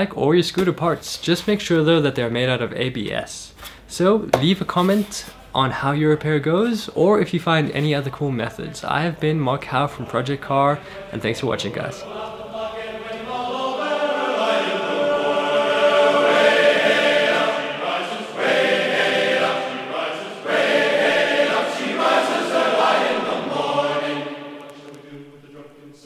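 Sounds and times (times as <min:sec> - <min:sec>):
voices chanting song: 0:10.8 - 0:26.0.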